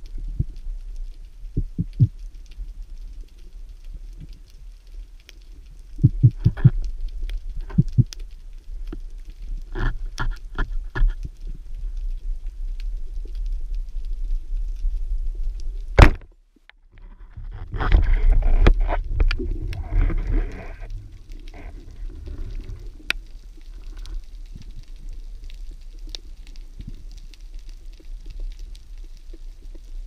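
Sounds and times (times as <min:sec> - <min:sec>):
underwater churning and bubbling: 0:00.0 - 0:16.3, 0:17.0 - 0:30.0
low underwater rumble: 0:00.0 - 0:30.0
speargun shot crack: 0:16.0 - 0:16.2.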